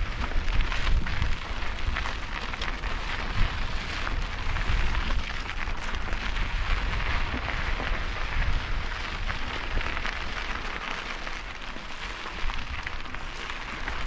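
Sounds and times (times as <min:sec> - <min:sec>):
bike tyres crackling over gravel: 0:00.0 - 0:14.0.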